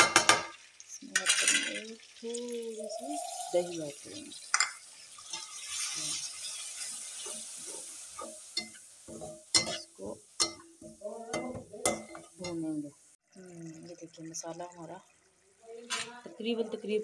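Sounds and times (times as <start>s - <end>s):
sizzling in a pan: 0.0s - 17.0s
metal spatula scraping a pan: 3.0s - 12.6s.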